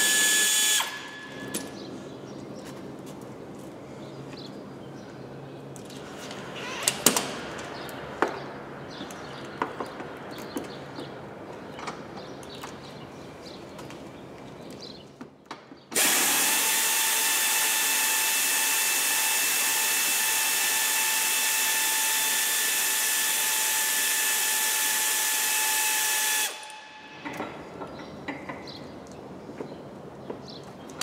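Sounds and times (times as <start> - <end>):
pneumatic air ratchet running: 0.0 - 1.7, 16.0 - 27.0.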